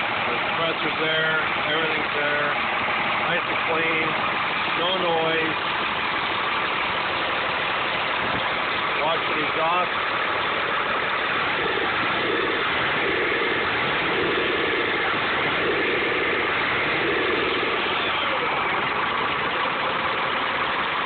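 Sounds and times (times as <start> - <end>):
diesel engine idling: 0.0 - 21.0.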